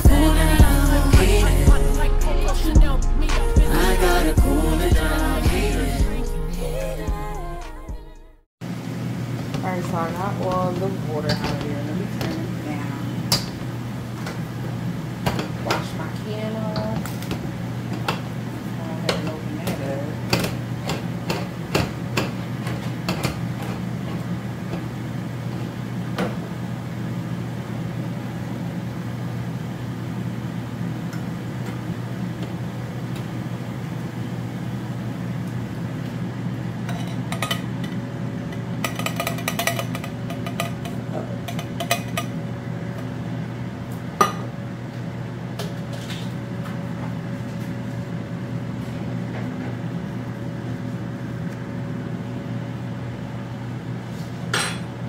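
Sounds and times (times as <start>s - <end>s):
steady low hum: 0.0s - 55.0s
pots and dishes clinking: 36.8s - 42.4s, 54.5s - 54.9s.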